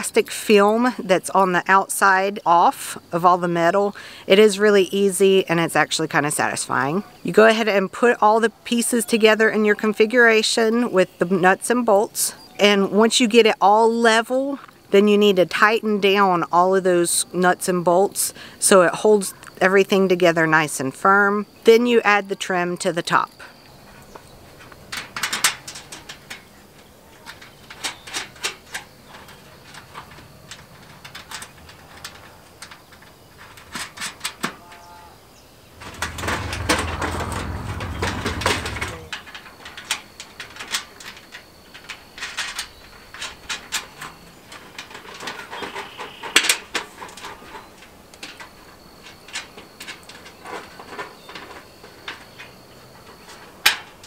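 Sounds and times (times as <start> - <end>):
metal panels clanking: 24.5 - 34.8, 35.8 - 54.0
loud rough noise: 35.7 - 39.2.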